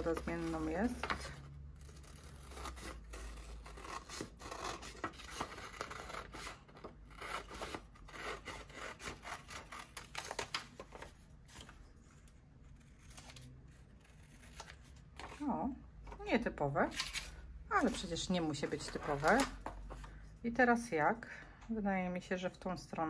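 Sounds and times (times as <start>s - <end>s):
scissors cutting paper: 0.0s - 10.9s, 12.8s - 15.5s, 16.9s - 19.6s.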